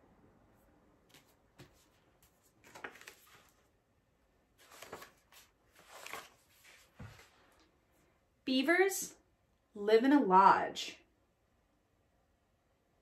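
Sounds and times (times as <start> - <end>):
book pages turning: 1.1 - 3.7, 4.5 - 7.7.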